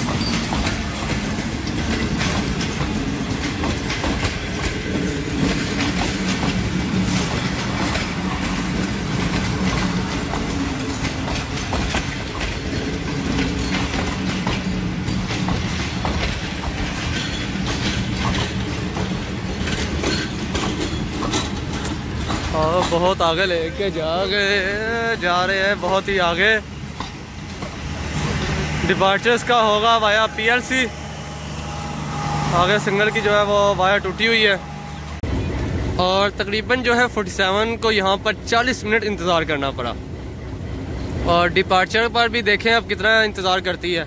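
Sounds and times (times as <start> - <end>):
wheels clicking over rail joints: 0.0 - 30.8
train coaches rumbling past: 0.0 - 44.0.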